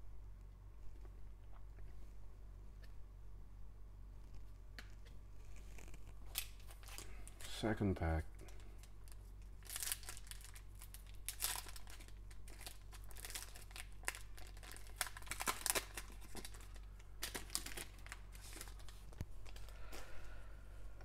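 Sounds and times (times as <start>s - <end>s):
foil wrapper tearing and crinkling: 6.3s - 7.2s, 8.5s - 19.0s.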